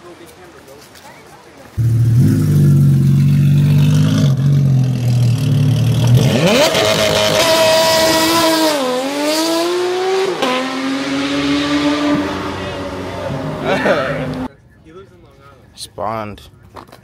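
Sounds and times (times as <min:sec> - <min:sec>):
car engine revving: 0:01.8 - 0:14.5.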